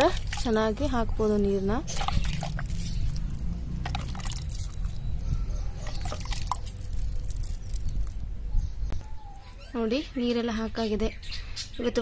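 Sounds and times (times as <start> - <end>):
water dripping on soil: 0.0 - 5.0, 5.8 - 8.3.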